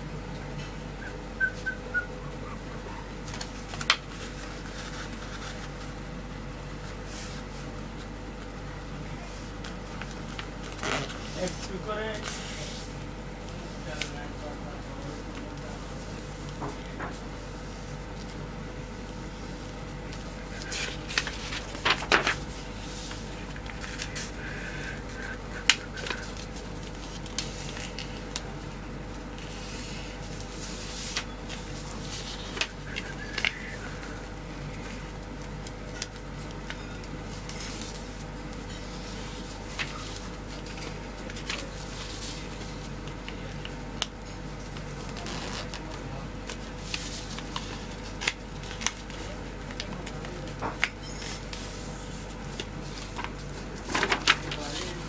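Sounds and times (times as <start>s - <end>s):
background hum: 0.0s - 55.0s
paper folding and creasing: 3.3s - 5.9s, 17.2s - 28.6s, 29.3s - 55.0s.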